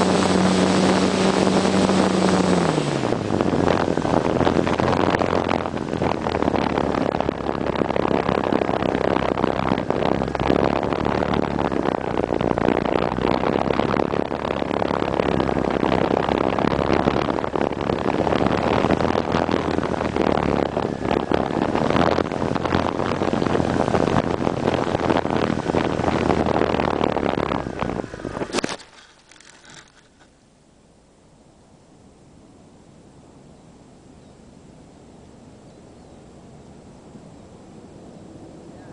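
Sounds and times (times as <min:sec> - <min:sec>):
wind rushing over microphone: 0:00.0 - 0:30.2, 0:31.6 - 0:38.9
electric motor and propeller hum: 0:00.0 - 0:30.5.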